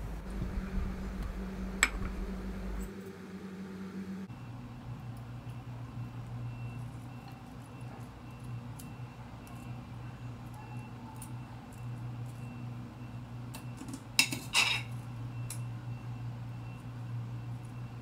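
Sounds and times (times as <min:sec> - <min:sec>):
low steady hum: 0:00.0 - 0:18.0
crockery clink: 0:14.2 - 0:15.0.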